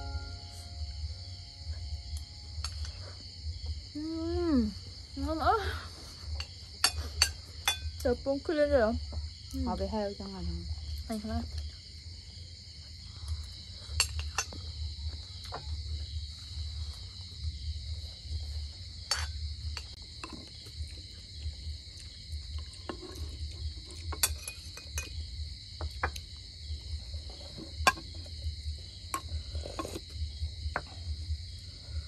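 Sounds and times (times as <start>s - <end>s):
high insect chorus: 0.0s - 32.0s
metal spoons clinking on dishes: 6.4s - 7.9s, 24.0s - 25.1s.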